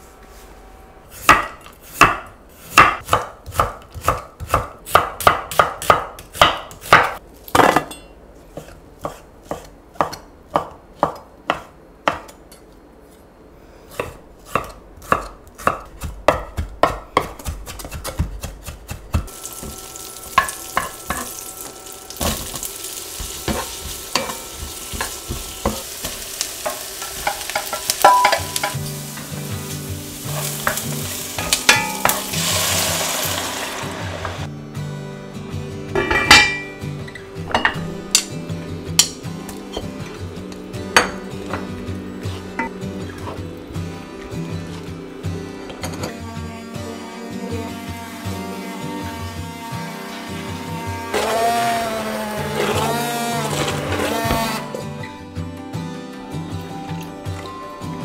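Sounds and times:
knife chopping on wooden board: 14.0 - 19.8
vegetables sizzling in pan: 19.3 - 34.5.

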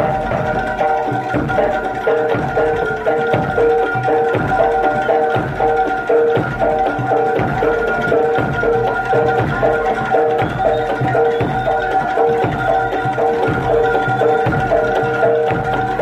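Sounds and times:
drumming: 0.0 - 16.0
held high note: 0.0 - 16.0.

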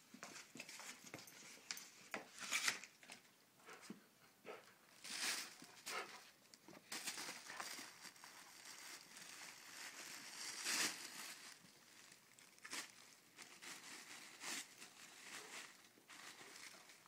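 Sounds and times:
tissue paper crinkling: 5.0 - 6.1, 6.8 - 17.0.

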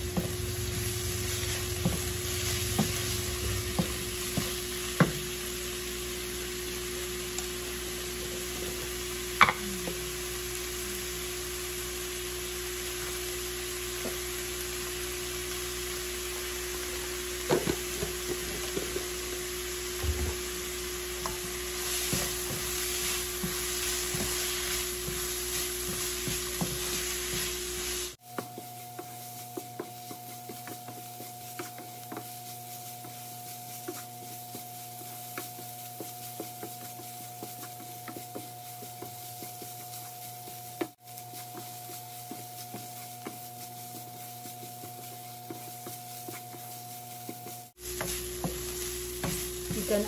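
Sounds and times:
wooden spatula scraping a pan: 0.0 - 5.5, 20.3 - 50.0
food sizzling in a frying pan: 0.0 - 50.0.

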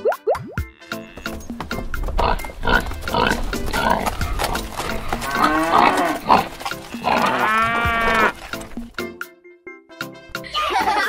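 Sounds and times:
background music: 0.0 - 11.0
farm animal calls: 0.7 - 8.9.

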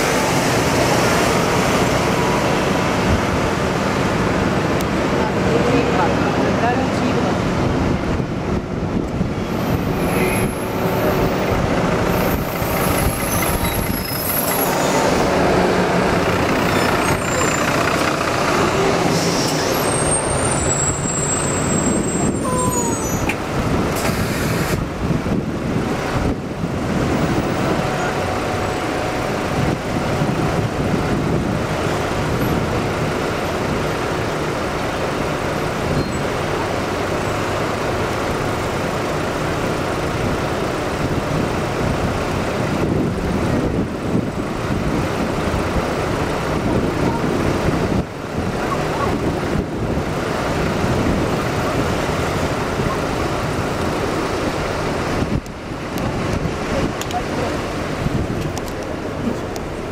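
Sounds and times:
bus engine and road noise: 0.0 - 59.9
brief high squeals: 19.1 - 23.4.

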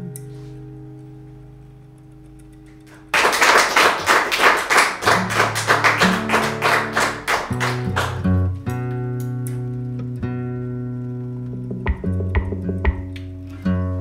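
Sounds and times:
guitar chord ringing: 5.0 - 14.0
rhythm machine ticking pattern: 11.6 - 13.2.

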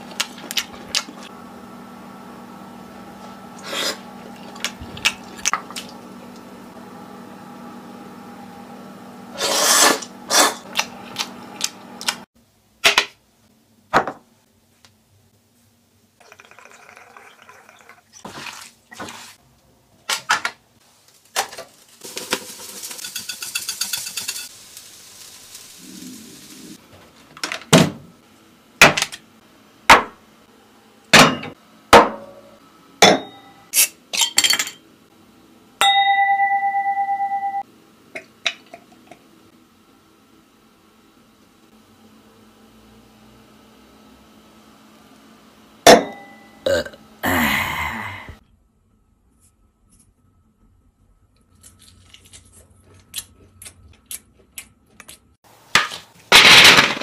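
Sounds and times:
spice shaker rattling: 21.7 - 24.8
drinking glass ringing: 35.8 - 37.6, 45.9 - 46.6.

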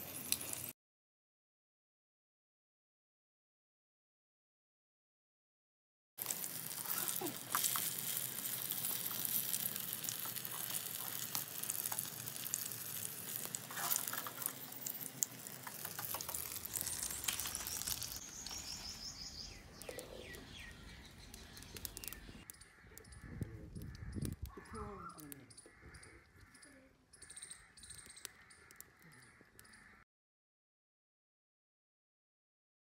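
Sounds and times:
fritters sizzling in hot oil: 0.0 - 0.7, 6.2 - 22.5.

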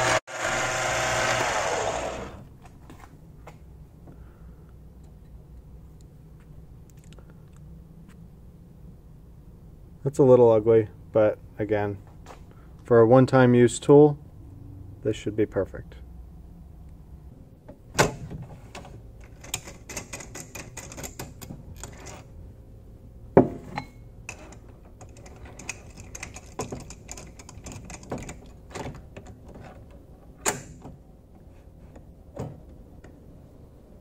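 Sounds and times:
metal clicks and clinks: 23.8 - 28.6.

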